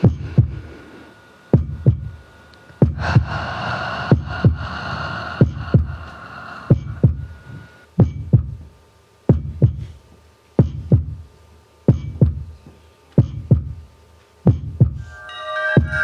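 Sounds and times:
slow heartbeat thumps: 0.0s - 0.9s, 1.5s - 2.2s, 2.8s - 10.0s, 10.6s - 11.3s, 11.9s - 12.6s, 13.2s - 13.8s, 14.5s - 15.0s.

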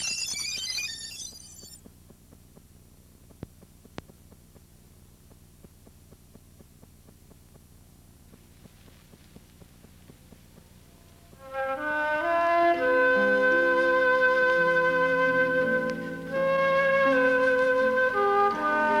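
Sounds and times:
low steady hum: 0.0s - 19.0s
sharp clicks: 1.6s - 7.7s
faint ticking: 1.8s - 11.4s
flute music: 11.3s - 19.0s.

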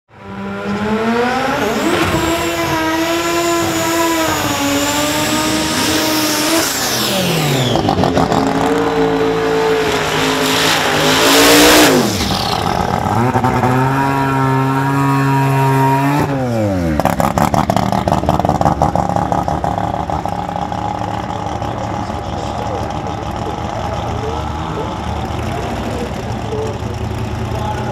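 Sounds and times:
car engine revving high: 0.1s - 27.9s
engine lumpy idle: 17.4s - 27.9s.

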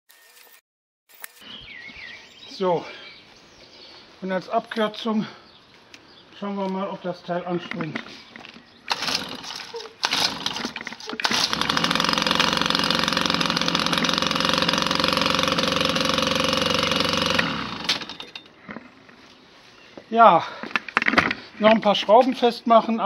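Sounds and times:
small two-stroke engine running: 8.9s - 18.5s.

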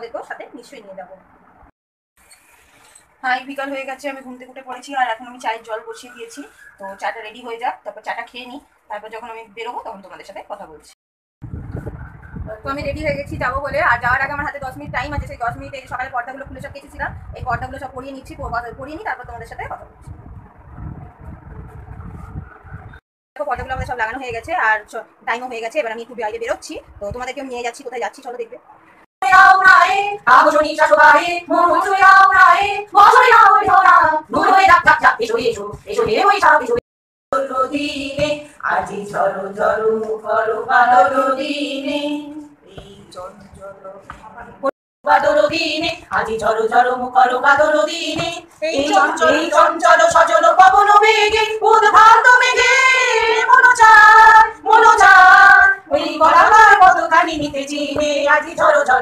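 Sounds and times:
women singing slow song: 29.2s - 36.8s, 37.4s - 59.0s.

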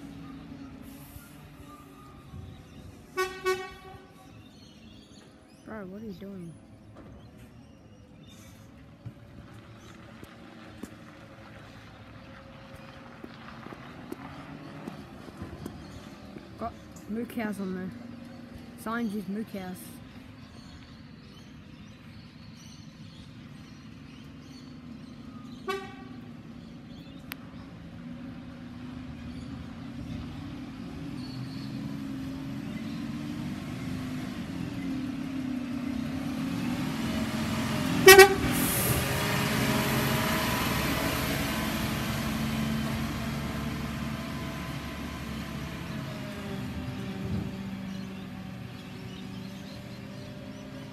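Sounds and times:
garbage truck diesel engine: 0.0s - 50.9s
truck horn toot: 3.1s - 4.3s, 25.6s - 26.2s, 38.0s - 38.7s.

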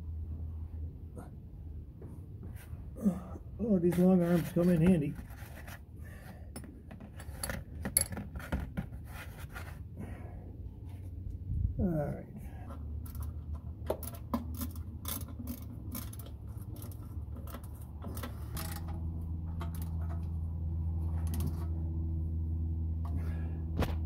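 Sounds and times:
low hum: 0.0s - 7.6s, 9.6s - 24.0s
wrench and bolts clicking: 13.9s - 19.0s.

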